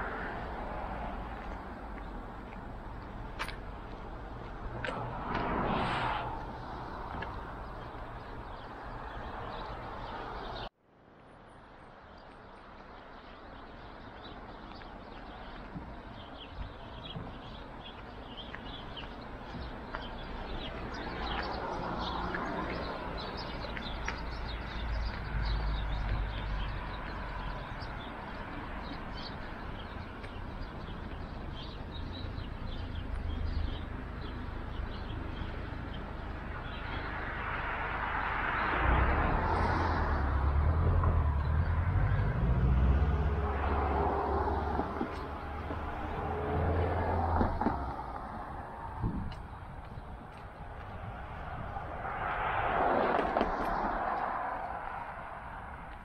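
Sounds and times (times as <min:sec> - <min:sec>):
vehicle passing: 0:00.0 - 0:10.7, 0:20.1 - 0:49.6, 0:50.5 - 0:56.0
traffic rumble: 0:00.0 - 0:56.0
wind: 0:00.0 - 0:56.0
small birds chirping: 0:06.5 - 0:10.7, 0:12.0 - 0:37.3.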